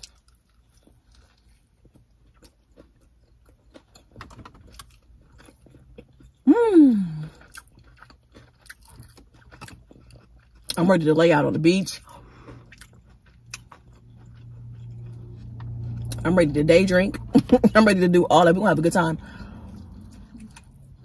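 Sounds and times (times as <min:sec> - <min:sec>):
crunchy chewing: 0:00.0 - 0:06.5, 0:07.3 - 0:10.9, 0:11.9 - 0:16.3, 0:19.4 - 0:21.0.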